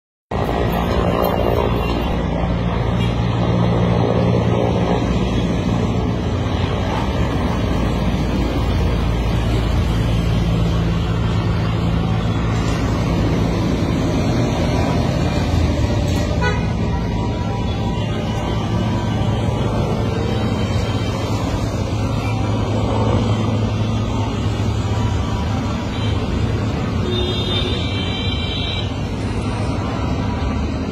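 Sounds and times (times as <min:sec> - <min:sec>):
helicopter flying low overhead: 0:00.3 - 0:30.9.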